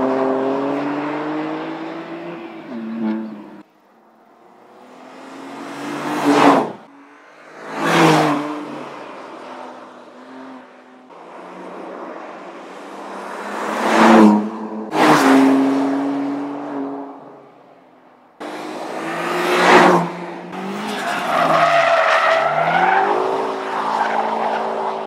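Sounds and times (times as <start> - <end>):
race car passing at speed: 4.2 - 17.3, 18.4 - 25.0.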